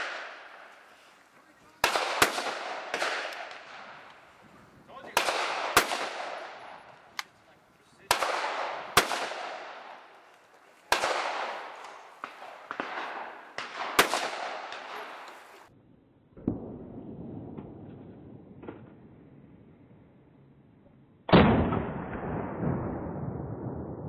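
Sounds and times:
gunshots echoing: 0:00.0 - 0:00.8, 0:01.7 - 0:04.3, 0:04.9 - 0:07.3, 0:08.0 - 0:10.2, 0:10.8 - 0:15.6, 0:21.3 - 0:24.0.

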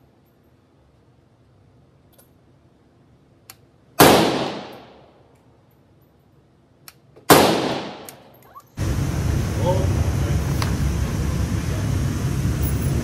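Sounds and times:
rifle shots: 0:04.0 - 0:05.0, 0:07.3 - 0:08.2.

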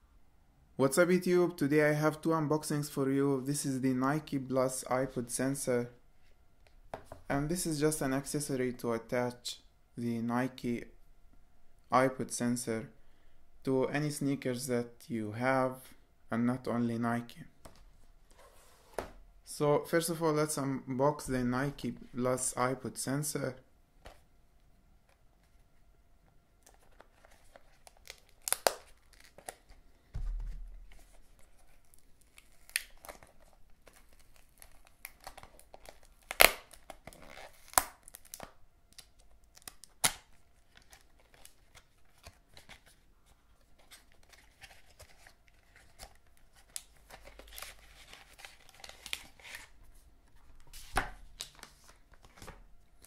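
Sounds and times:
card and paper crinkling: 0:26.6 - 0:52.7.

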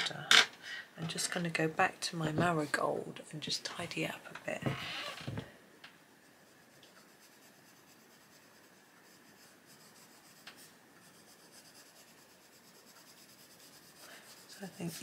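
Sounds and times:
pencil scratching on paper: 0:06.2 - 0:15.0.

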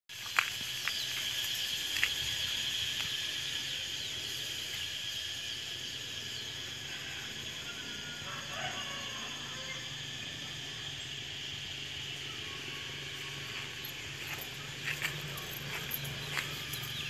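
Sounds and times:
insect chorus: 0:00.1 - 0:17.0.

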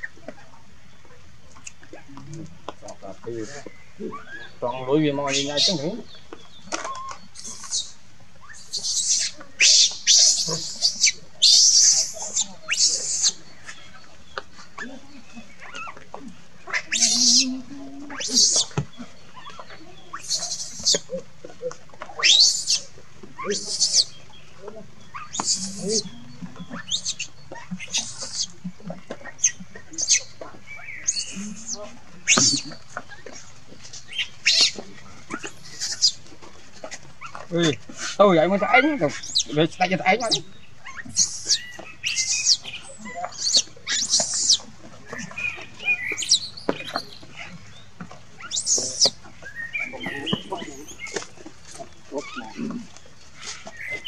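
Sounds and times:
baby monkey screaming: 0:05.3 - 0:05.8, 0:06.8 - 0:13.4, 0:16.7 - 0:18.8, 0:19.4 - 0:21.2, 0:22.2 - 0:24.1, 0:25.1 - 0:26.1, 0:26.7 - 0:28.5, 0:29.3 - 0:30.3, 0:31.0 - 0:32.7, 0:34.2 - 0:36.2, 0:40.2 - 0:47.5, 0:48.4 - 0:49.2.

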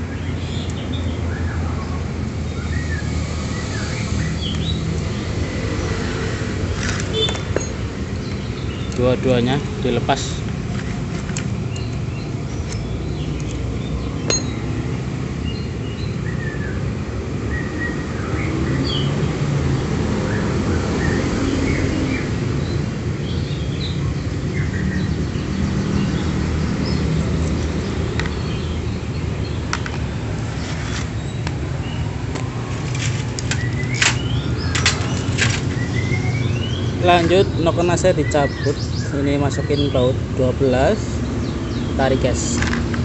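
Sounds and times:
birds chirping: 0:00.0 - 0:19.4, 0:20.2 - 0:43.0.

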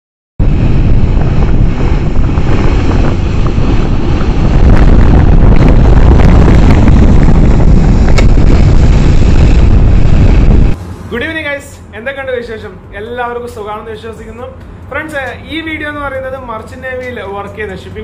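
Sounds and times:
wind buffeting microphone: 0:00.4 - 0:11.0
sea water rushing along hull: 0:00.4 - 0:11.4.

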